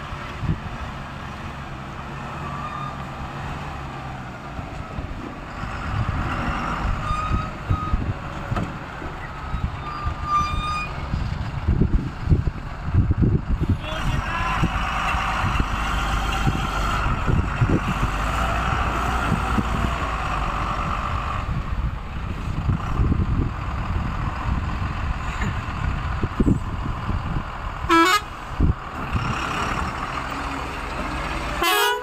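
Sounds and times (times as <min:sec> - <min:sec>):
truck engine running: 0:00.0 - 0:32.0
truck horn toot: 0:27.9 - 0:28.3, 0:31.6 - 0:32.0.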